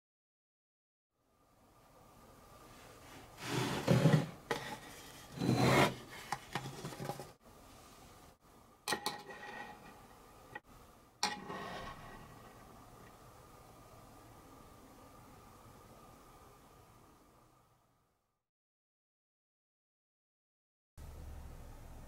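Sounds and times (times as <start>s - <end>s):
plywood scraping on workbench: 3.4s - 7.3s.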